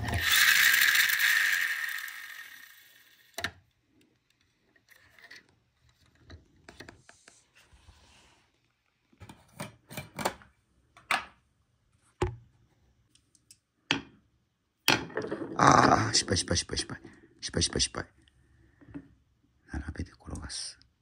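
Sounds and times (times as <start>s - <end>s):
toy truck clicks and knocks: 0.0s - 3.6s.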